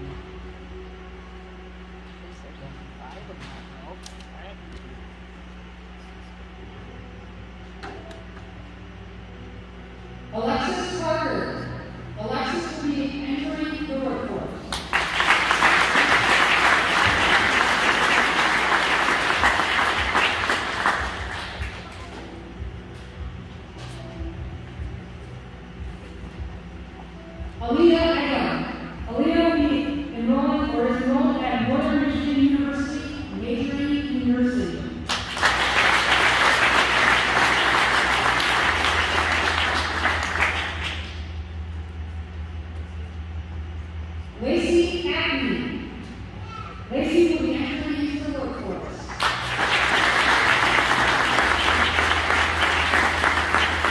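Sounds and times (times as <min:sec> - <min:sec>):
audience applauding: 0:14.7 - 0:22.2, 0:35.1 - 0:41.2, 0:49.1 - 0:53.9.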